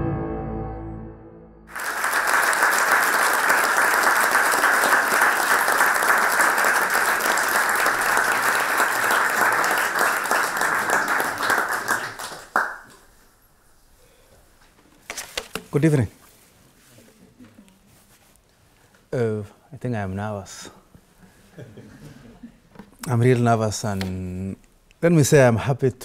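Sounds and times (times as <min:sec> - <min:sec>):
audience applauding: 0:01.7 - 0:13.2.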